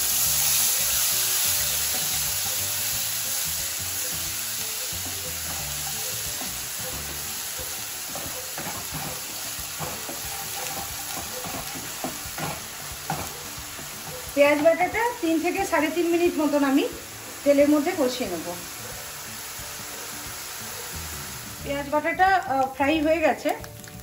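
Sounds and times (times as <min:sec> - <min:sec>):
paste sizzling in oil: 0:00.0 - 0:24.0
spatula scraping a pan: 0:05.1 - 0:14.7.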